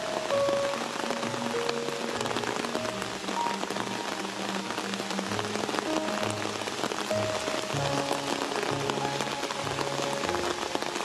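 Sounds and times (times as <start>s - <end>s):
heavy rain falling: 0.0s - 11.0s
slow background music: 0.0s - 11.0s.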